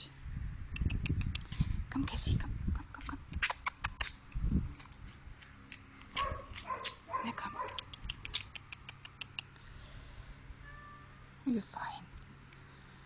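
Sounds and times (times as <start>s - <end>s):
sharp clicks: 7.7s - 9.5s.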